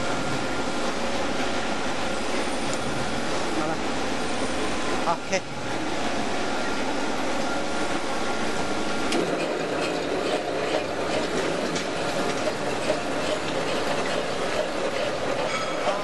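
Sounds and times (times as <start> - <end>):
machine motor clattering: 9.0 - 16.0.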